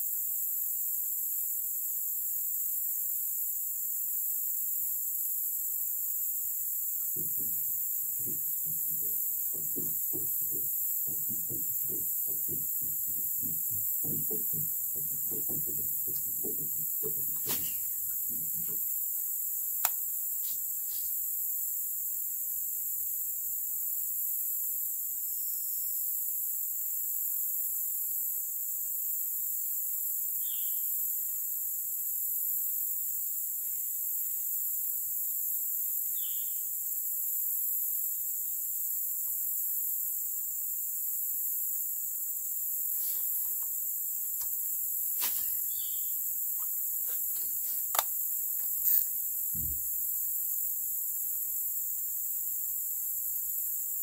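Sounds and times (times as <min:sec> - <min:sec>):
insects chorus: 0:00.0 - 0:54.0
sharp clicks and knocks: 0:07.0 - 0:19.0
short insect chirps: 0:16.8 - 0:54.0.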